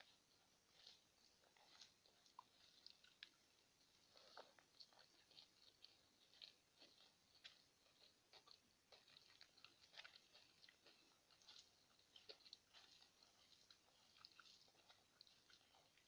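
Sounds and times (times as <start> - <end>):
chewing: 0.0 - 16.0
fingers squishing rice: 0.0 - 16.0.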